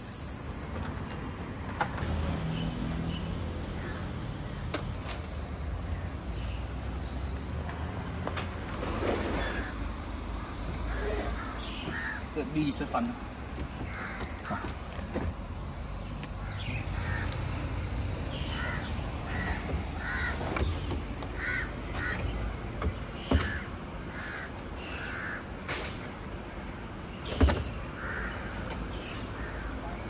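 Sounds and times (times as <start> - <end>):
crows cawing: 3.8 - 4.1, 10.9 - 12.4, 13.8 - 14.9, 16.4 - 17.5, 18.4 - 20.6, 21.3 - 22.4, 23.3 - 25.6, 27.9 - 28.7, 29.4 - 29.8.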